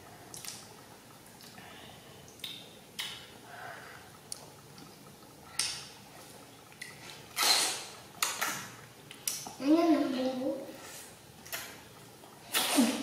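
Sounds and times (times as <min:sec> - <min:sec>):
slurping: 0:06.2 - 0:08.6.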